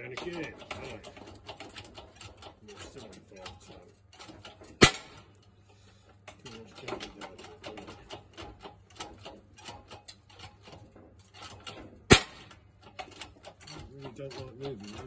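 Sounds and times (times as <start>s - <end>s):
metal clicks and creaks: 0.0s - 15.0s
piston breaking free crack: 3.4s - 15.0s.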